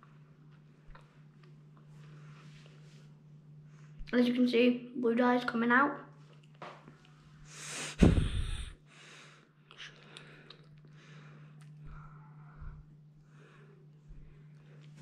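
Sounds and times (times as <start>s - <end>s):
heavy breathing: 7.4s - 14.5s.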